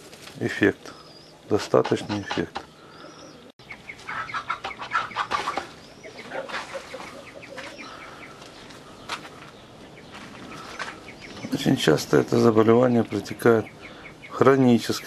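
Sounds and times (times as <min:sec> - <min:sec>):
pigeon wings flapping on ground: 0:00.0 - 0:00.7, 0:05.3 - 0:07.8
clucking bird calls: 0:00.7 - 0:15.0.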